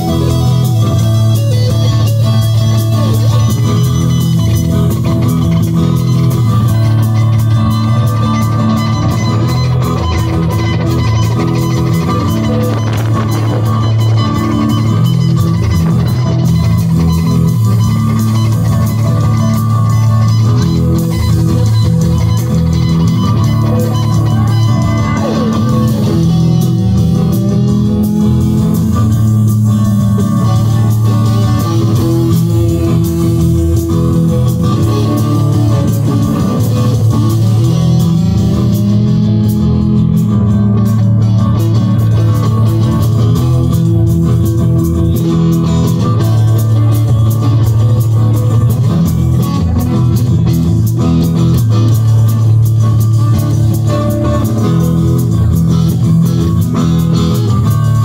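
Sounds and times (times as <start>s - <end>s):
live band with electric guitars: 0.0s - 58.0s.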